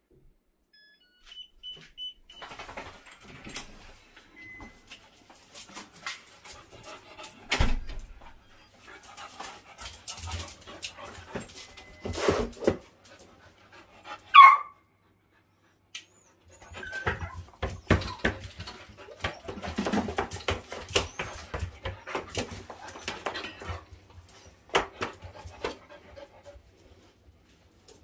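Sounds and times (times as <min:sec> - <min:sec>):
dog panting: 0:05.7 - 0:11.6, 0:13.1 - 0:14.3, 0:17.9 - 0:26.9
dog whining: 0:16.0 - 0:23.8
dog claws clicking and scrabbling: 0:17.0 - 0:24.0.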